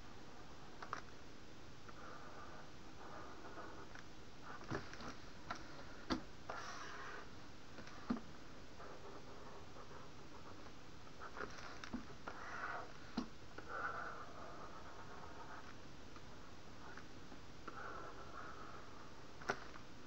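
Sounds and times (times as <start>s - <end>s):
low steady hiss: 0.0s - 20.0s
computer mouse clicks: 0.8s - 1.1s.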